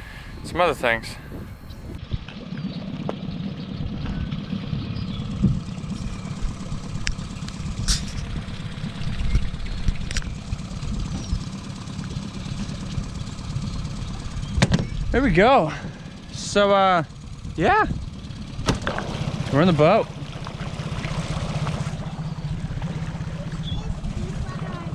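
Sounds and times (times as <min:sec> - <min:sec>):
outboard motor idling: 0:00.0 - 0:24.9
sharp knocks: 0:18.6 - 0:19.2.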